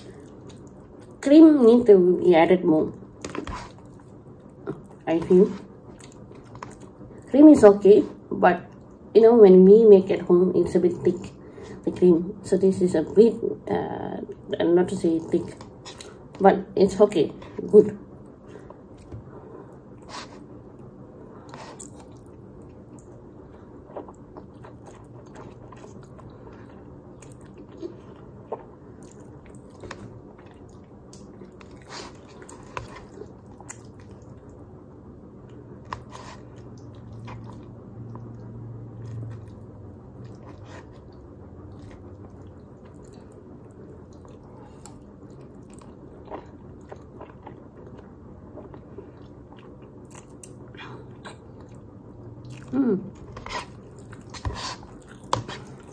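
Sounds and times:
low background hum: 0.0s - 55.9s
chewing and slurping spaghetti: 20.0s - 34.6s, 35.5s - 50.6s, 51.2s - 55.9s.

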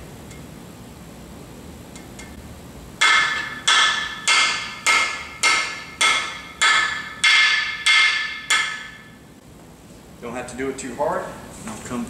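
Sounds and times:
hammer tapping metal: 3.0s - 9.2s.

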